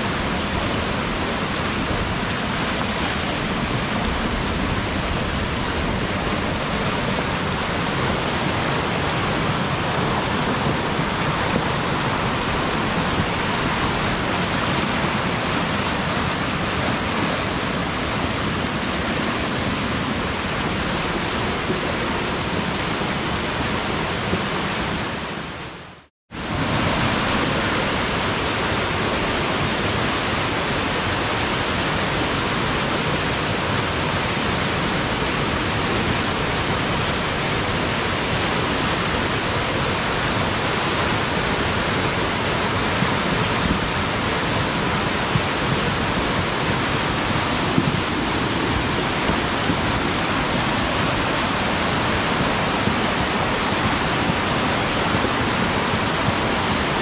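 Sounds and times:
fast water rushing in creek: 0:00.0 - 0:57.0.

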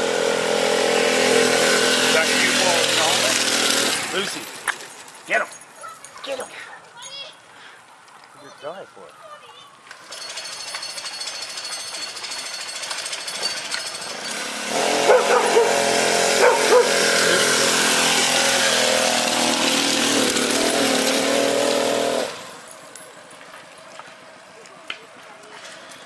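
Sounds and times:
motorized bicycle engine passing: 0:00.0 - 0:05.2, 0:09.9 - 0:24.6
dog barking: 0:15.0 - 0:15.8, 0:16.4 - 0:17.0.

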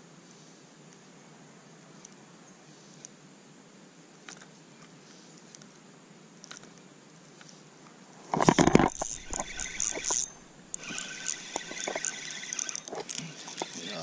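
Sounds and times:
small ticks: 0:06.4 - 0:13.8
rustling and knocking near microphone: 0:08.3 - 0:10.2
sharp clicks: 0:08.4 - 0:13.8.

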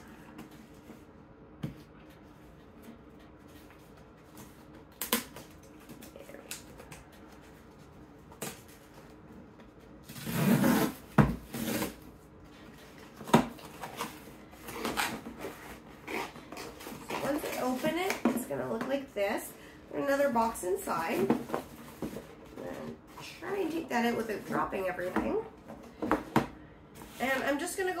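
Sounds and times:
cardboard rustling and scraping: 0:07.4 - 0:19.0, 0:20.4 - 0:26.4.

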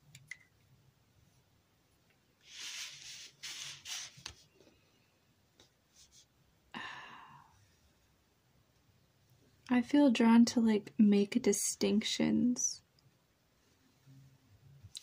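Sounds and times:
marker drawing on cardboard: 0:02.4 - 0:04.4.

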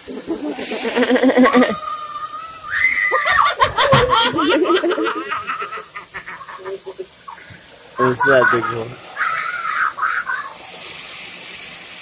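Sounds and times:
woman laughing and squealing: 0:00.3 - 0:07.1, 0:08.1 - 0:10.6
hose nozzle spray hiss: 0:10.6 - 0:12.0.

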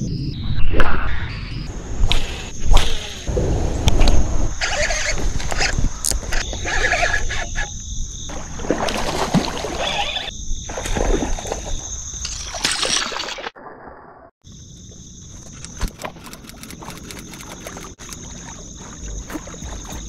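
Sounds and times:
fishing reel rustles and clicks: 0:15.6 - 0:18.2.

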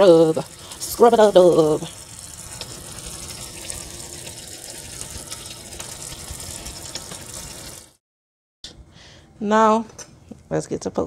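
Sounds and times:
faucet running into steel sink: 0:00.0 - 0:08.0.

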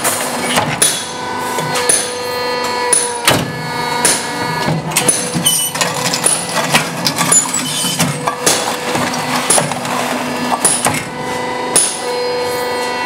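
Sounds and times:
machine hum: 0:00.0 - 0:13.0
metallic knocks and clatter: 0:03.0 - 0:11.2.

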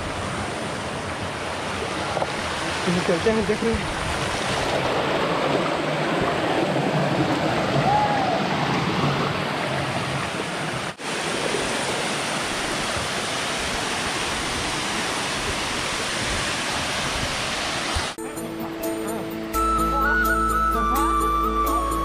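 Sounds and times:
stream running over rocks: 0:00.0 - 0:18.2
waterfall pouring into pool: 0:10.6 - 0:18.2.

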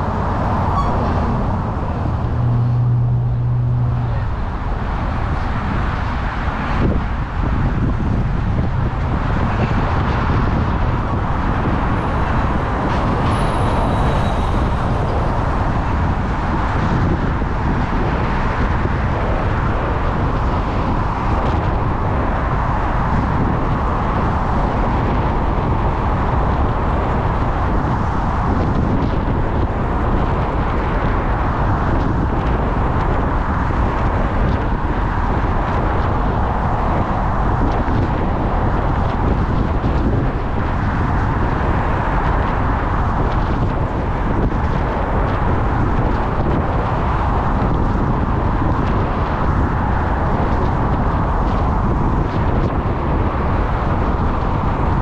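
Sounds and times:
road traffic noise: 0:00.0 - 0:55.0
wind rushing over microphone: 0:00.0 - 0:55.0.

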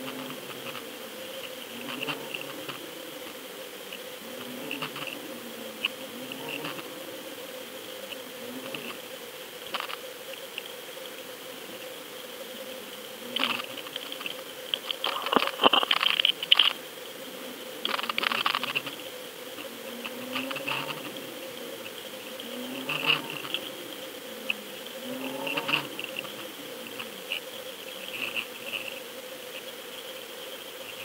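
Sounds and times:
electronic hum and whine: 0:00.0 - 0:31.0
clicking and crackling: 0:13.4 - 0:16.8, 0:17.8 - 0:19.0.

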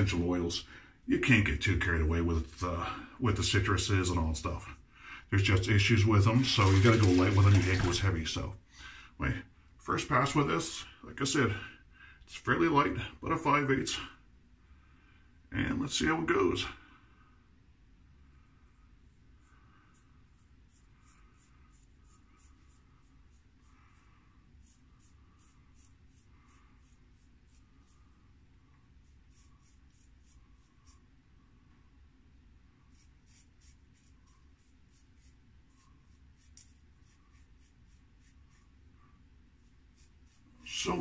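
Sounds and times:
straight razor scratching stubble: 0:06.3 - 0:08.0, 0:20.0 - 0:23.7, 0:24.6 - 0:28.1, 0:29.0 - 0:31.0, 0:32.9 - 0:38.8, 0:39.6 - 0:41.0.

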